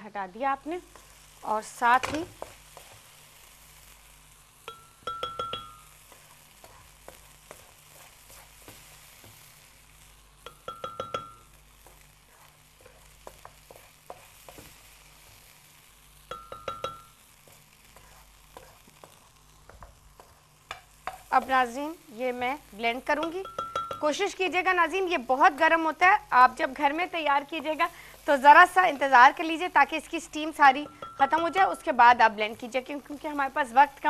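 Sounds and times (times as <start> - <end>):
spoon scraping wok: 0.8 - 21.8, 27.0 - 33.3
metal spoon clinking on blender jar: 23.2 - 24.0.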